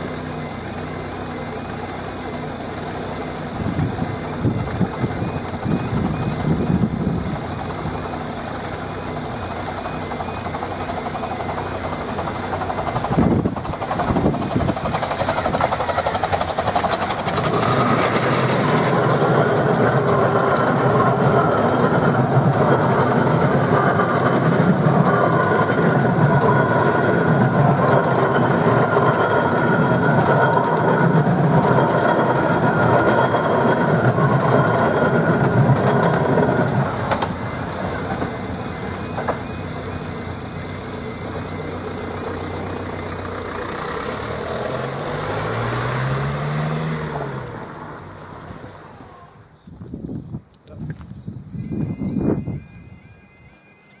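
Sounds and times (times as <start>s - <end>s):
steam train rumble and wheel clatter: 0.0s - 54.0s
level crossing warning tone: 8.1s - 44.1s, 51.5s - 54.0s.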